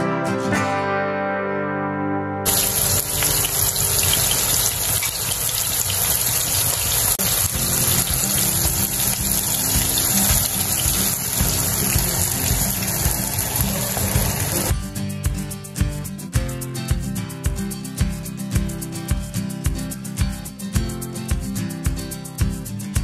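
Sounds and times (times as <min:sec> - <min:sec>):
background music: 0:00.0 - 0:04.7, 0:07.2 - 0:23.0
loud rushing hiss: 0:02.5 - 0:14.7.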